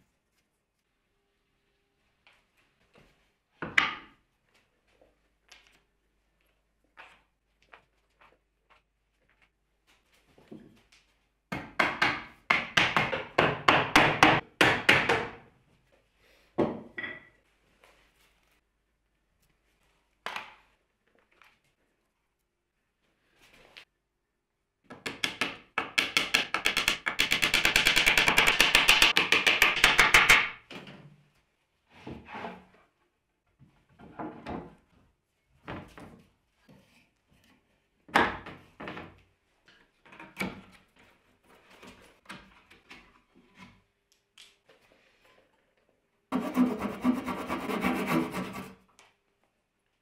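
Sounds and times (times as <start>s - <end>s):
wooden parts knocking: 25.0s - 30.6s
rasping strokes on wood: 46.3s - 48.8s.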